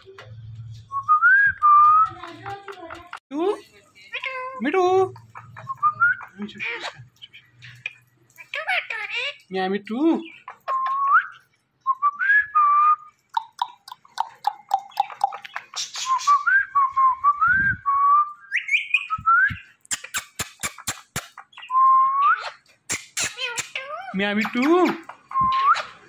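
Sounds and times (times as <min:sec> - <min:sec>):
parakeet sharp clicks: 0:13.3 - 0:15.7, 0:19.8 - 0:21.5
parakeet whistling: 0:18.3 - 0:20.2, 0:25.2 - 0:26.0.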